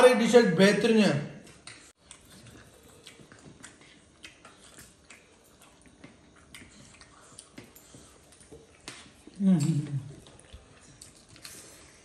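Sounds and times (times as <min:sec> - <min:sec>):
people chewing: 0:01.4 - 0:12.0.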